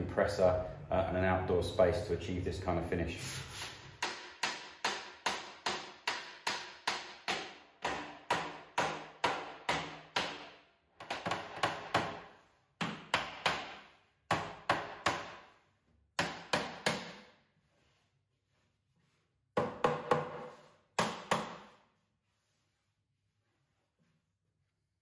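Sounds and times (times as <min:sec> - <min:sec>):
hammer knocking on wooden cabinet: 0:04.0 - 0:10.4, 0:12.8 - 0:15.4, 0:19.6 - 0:20.4, 0:21.0 - 0:21.7.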